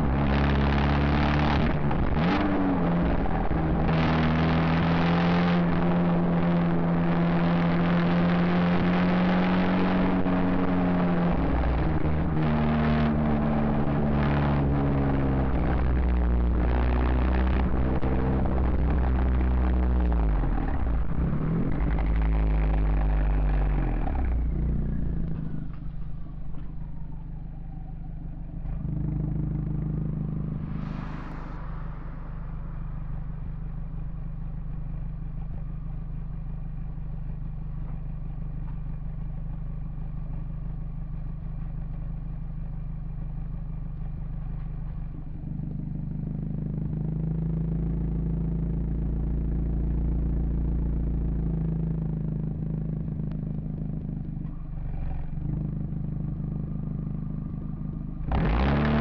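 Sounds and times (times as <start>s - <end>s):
car engine idling: 13.1s - 59.0s
passing traffic rushing: 28.6s - 34.6s.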